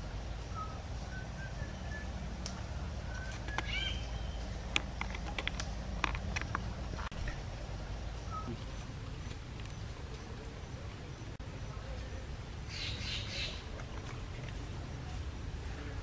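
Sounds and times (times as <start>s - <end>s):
birds chirping: 0.0s - 16.0s
woody clicks and snaps: 2.4s - 3.7s, 4.6s - 7.2s.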